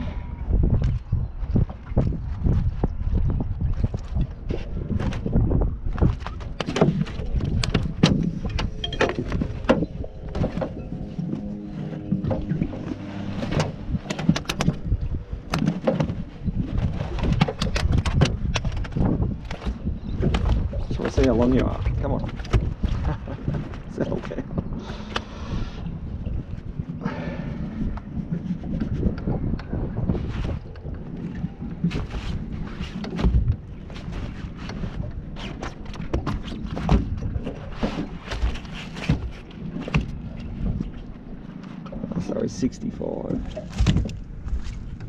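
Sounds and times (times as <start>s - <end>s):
wind rumbling on microphone: 0.0s - 45.0s
knocks taps and rustles: 5.9s - 11.4s, 12.0s - 25.2s.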